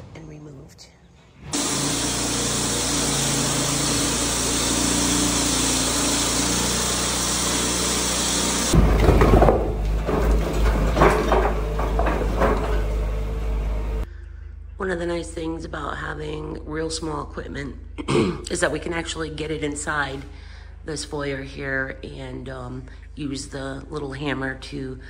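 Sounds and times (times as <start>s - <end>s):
concrete saw cutting: 1.5s - 14.0s
bucket scraping and clunking on concrete: 4.0s - 13.6s
excavator engine rumbling: 8.2s - 14.1s.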